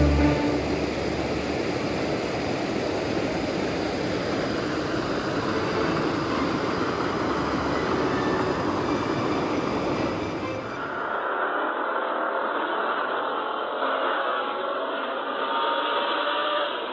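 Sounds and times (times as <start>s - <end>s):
stream water rushing: 0.0s - 11.0s.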